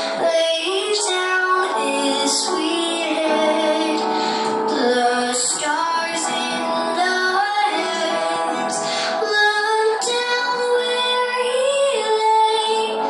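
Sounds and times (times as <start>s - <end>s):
woman singing slow song: 0.0s - 13.0s.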